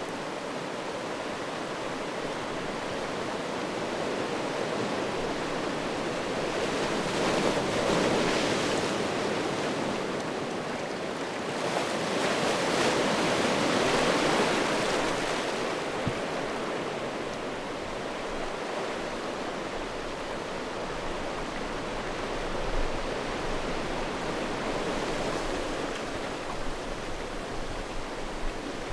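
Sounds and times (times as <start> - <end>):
sea waves on boulder beach: 0.0 - 28.9.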